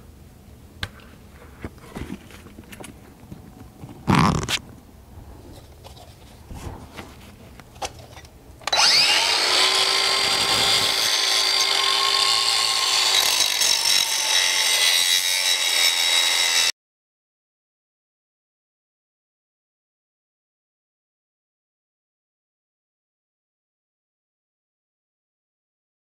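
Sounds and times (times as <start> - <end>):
handling noise: 0.9 - 4.8
angle grinder grinding metal: 8.7 - 16.7.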